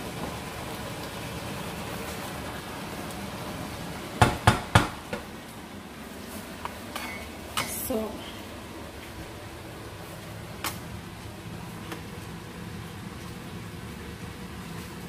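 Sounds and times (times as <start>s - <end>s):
stew simmering and bubbling: 0.0s - 15.0s
kitchenware knocks: 4.2s - 5.2s.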